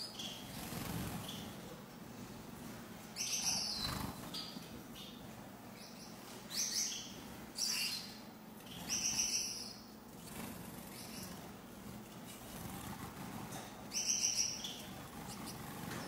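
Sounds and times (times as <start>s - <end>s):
finches calling: 3.2s - 5.2s, 5.8s - 11.6s, 13.9s - 16.0s.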